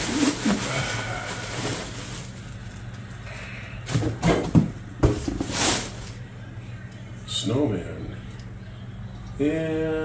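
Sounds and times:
bubble wrap rustle: 0:00.0 - 0:03.1, 0:05.2 - 0:06.3.

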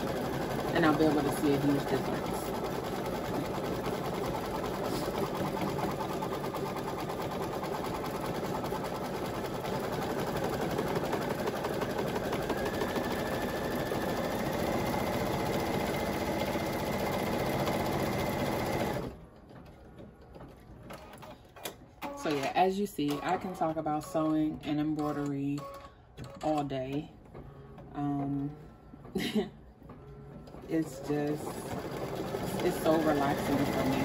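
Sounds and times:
embroidery machine stitching: 0:00.0 - 0:19.2, 0:30.5 - 0:34.0.

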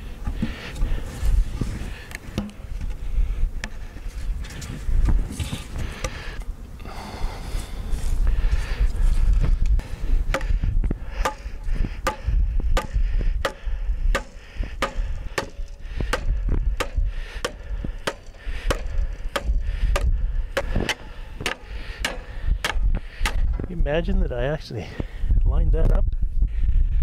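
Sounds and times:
hammer striking wood: 0:11.2 - 0:23.4.

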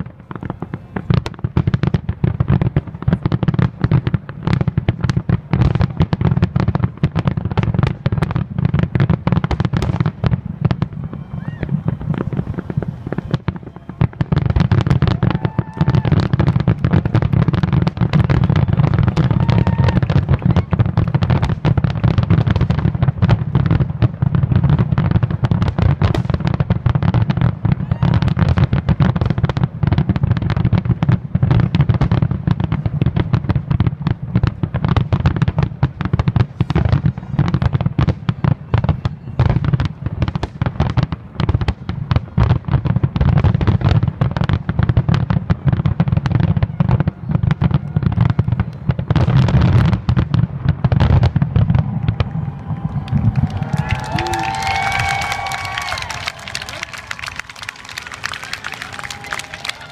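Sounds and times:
fireworks bursting: 0:00.0 - 0:59.9.

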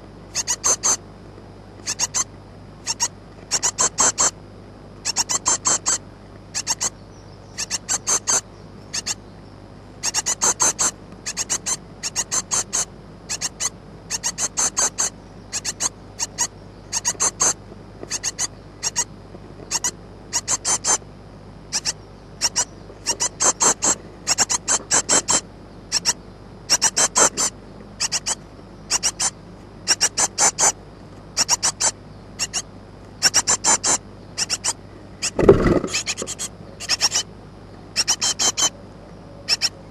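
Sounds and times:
nestlings peeping: 0:00.2 - 0:01.1, 0:01.8 - 0:39.9.

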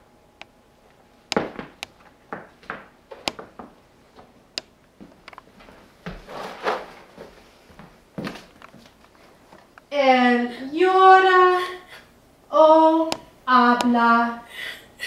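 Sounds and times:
footsteps and shuffling on plywood: 0:05.0 - 0:09.7.

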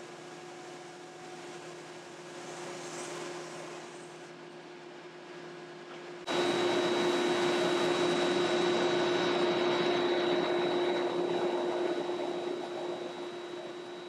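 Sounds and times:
belt sander running: 0:06.3 - 0:14.0.

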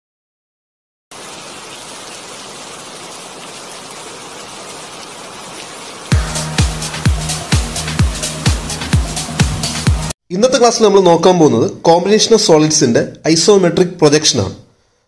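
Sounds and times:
electronic dance beat: 0:06.1 - 0:10.1.

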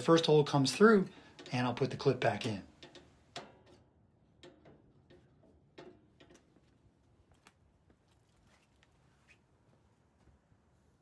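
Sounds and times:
faint metal clicks and ticks: 0:00.0 - 0:07.6.

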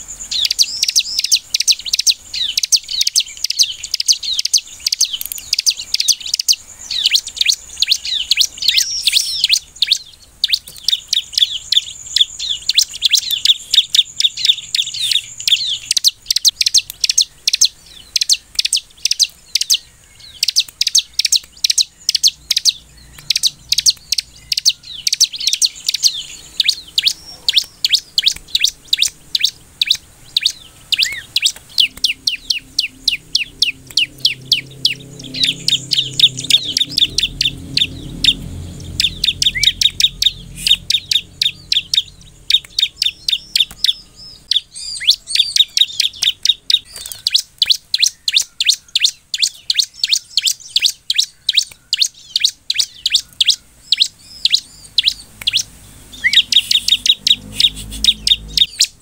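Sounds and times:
bird chirping: 0:00.0 - 0:59.0.

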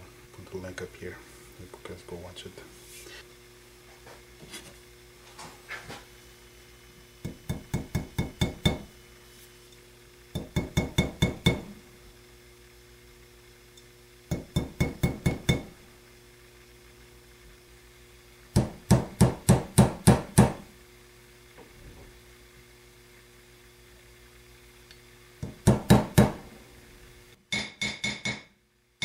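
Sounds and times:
small hammer tapping on anvil: 0:07.2 - 0:08.9, 0:10.4 - 0:11.7, 0:14.3 - 0:15.7, 0:27.5 - 0:28.5.

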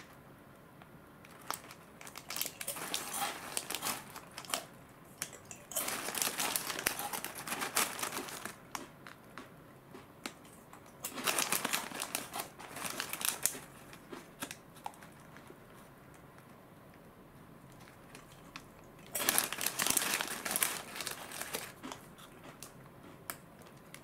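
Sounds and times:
foil snack bag crinkling: 0:01.2 - 0:09.2, 0:11.1 - 0:15.6, 0:17.8 - 0:22.0.

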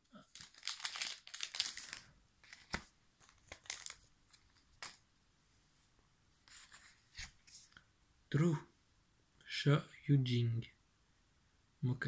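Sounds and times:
foil wrapper crinkling and tearing: 0:00.2 - 0:05.0.

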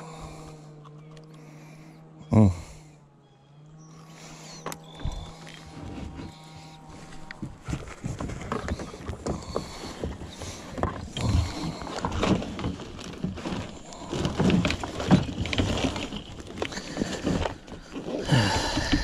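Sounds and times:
knocks and clicks in a boat: 0:07.1 - 0:19.0.

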